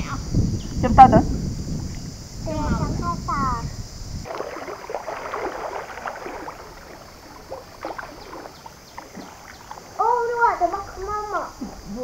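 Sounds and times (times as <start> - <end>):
water splashing and gurgling: 4.2 - 12.0.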